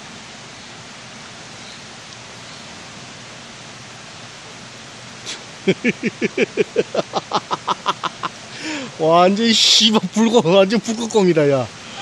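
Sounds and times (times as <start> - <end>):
stream water rushing: 0.0 - 12.0
person laughing hard: 5.6 - 8.8.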